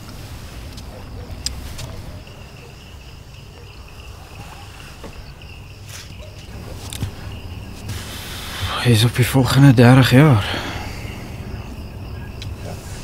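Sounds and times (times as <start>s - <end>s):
crickets chirping: 0.0s - 13.0s
low outdoor rumble: 0.0s - 13.0s.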